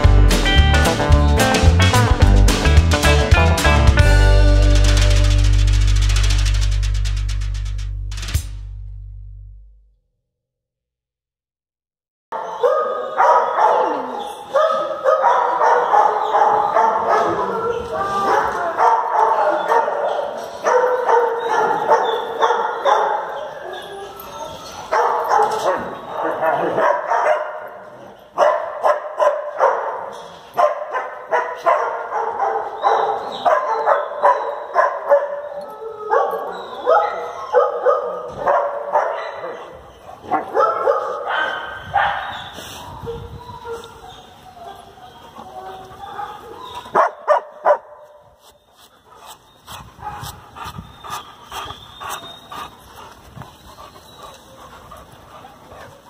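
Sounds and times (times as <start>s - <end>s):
dogs barking and yipping: 12.3s - 56.0s.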